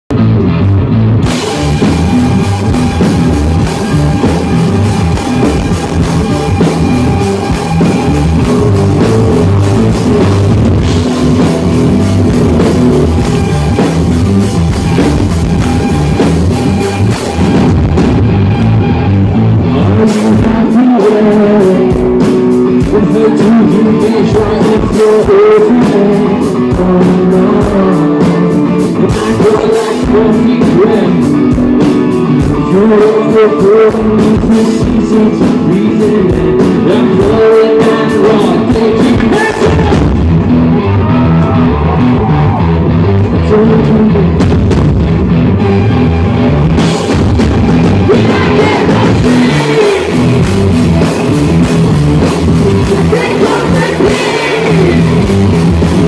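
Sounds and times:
bass guitar: 0.0 - 56.0
drum kit: 0.1 - 56.0
electric guitars: 0.1 - 56.0
man singing: 7.5 - 13.8, 19.6 - 40.2, 43.3 - 44.5, 47.9 - 51.0, 52.7 - 56.0.

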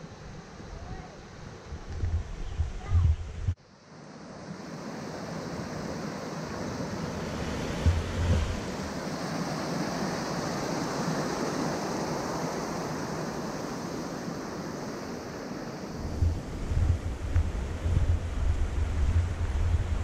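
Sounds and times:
wind buffeting microphone: 0.3 - 3.6, 6.5 - 9.1, 16.0 - 20.0.

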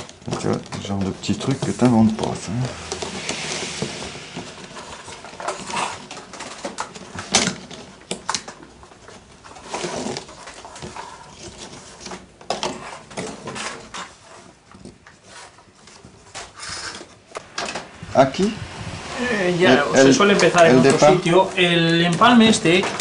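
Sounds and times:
wooden strips creaking and scraping: 0.0 - 23.0.

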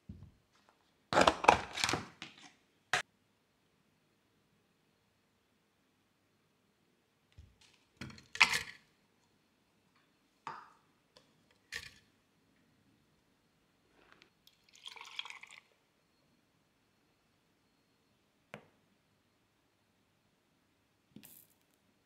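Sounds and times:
milk pouring: 14.5 - 15.8.

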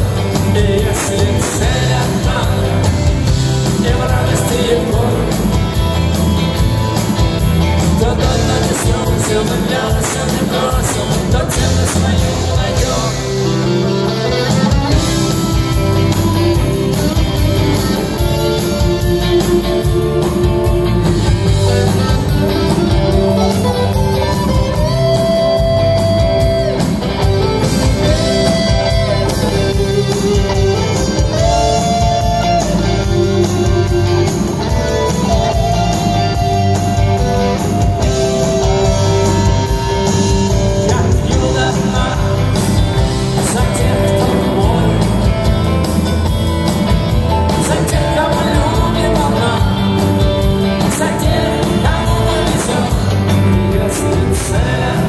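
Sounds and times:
rock band playing: 0.0 - 55.0
electric guitar solo: 13.2 - 40.9.

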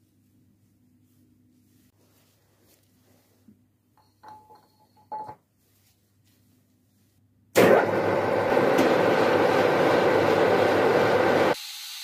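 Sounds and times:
light metallic clinks: 4.0 - 5.4
lathe running: 7.6 - 11.6.

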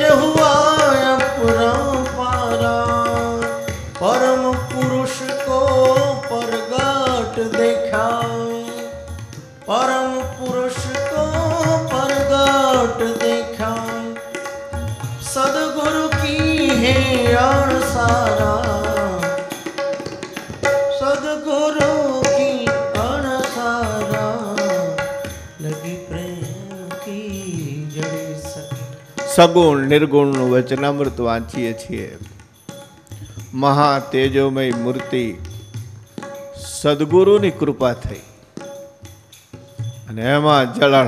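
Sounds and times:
man singing: 0.0 - 19.8, 20.6 - 32.2, 40.1 - 41.0
tabla: 0.0 - 41.0
harmonium drone: 40.7 - 41.0.

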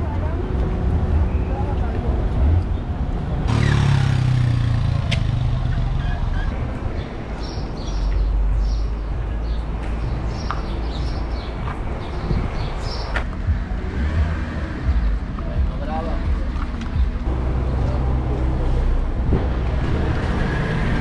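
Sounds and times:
low rumble of traffic: 0.0 - 21.0
vehicle engine running close: 3.4 - 7.2.

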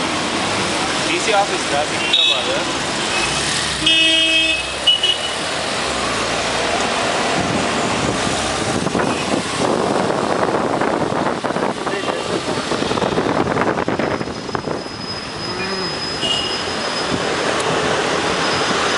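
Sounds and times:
car engine and tyre noise: 0.0 - 18.9
road traffic: 0.0 - 18.9
wind buffeting microphone: 7.1 - 15.5.

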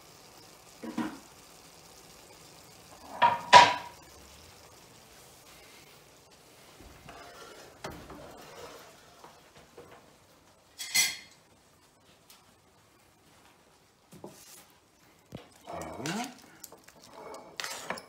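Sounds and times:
pan clanking on metal grate: 3.0 - 4.0.

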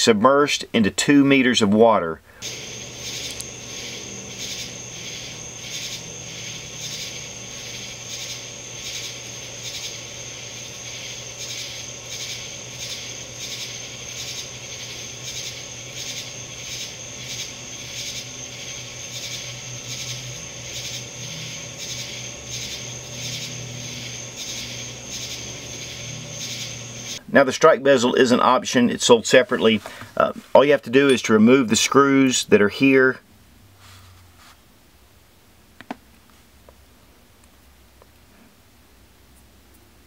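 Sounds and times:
low hum: 2.3 - 27.3
insects calling in chorus: 2.3 - 33.1.

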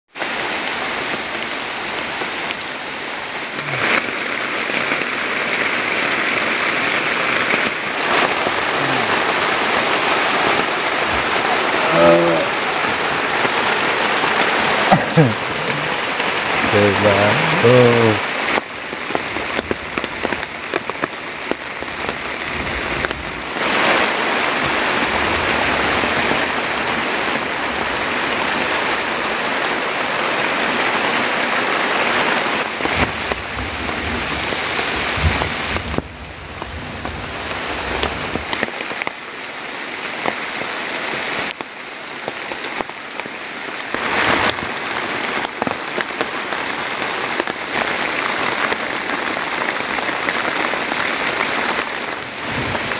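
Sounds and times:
heavy rain on plastic tarp: 0.1 - 52.9.

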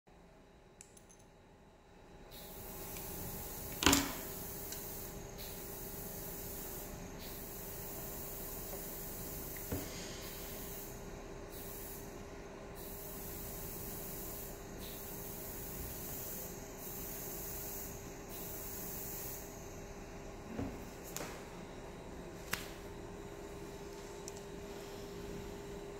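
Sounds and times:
steady hiss: 2.3 - 19.8.

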